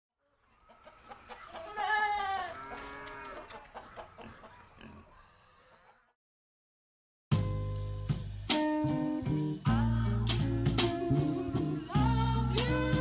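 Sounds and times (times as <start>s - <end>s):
sheep bleating: 1.6s - 3.5s.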